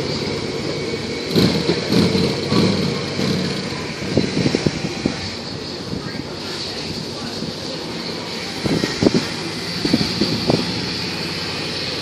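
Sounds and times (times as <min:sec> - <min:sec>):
motorcycle engine running: 0:00.0 - 0:05.2.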